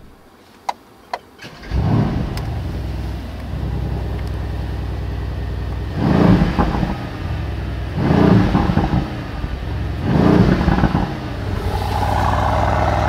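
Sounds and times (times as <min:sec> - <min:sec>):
car engine starting and idling: 0:11.2 - 0:13.0
engine rev blip: 0:11.4 - 0:13.0.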